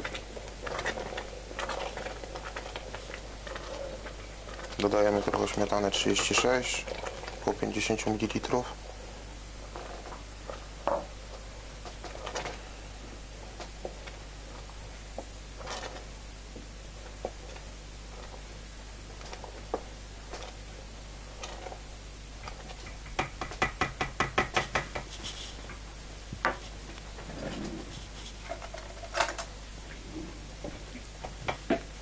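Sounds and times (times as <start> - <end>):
rapid spoon taps: 22.4 - 25.2
low hum: 25.4 - 31.3.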